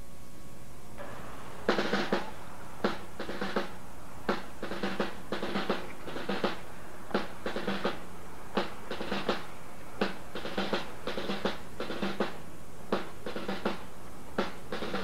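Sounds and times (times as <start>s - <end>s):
snare drums beating cadence: 1.0s - 15.0s.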